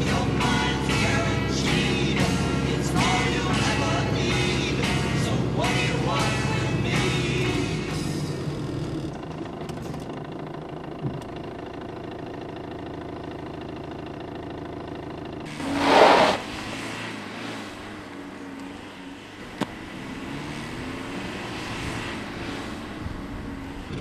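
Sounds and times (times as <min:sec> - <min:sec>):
car engine idling: 0:00.0 - 0:24.0
loud rushing noise: 0:15.5 - 0:18.0.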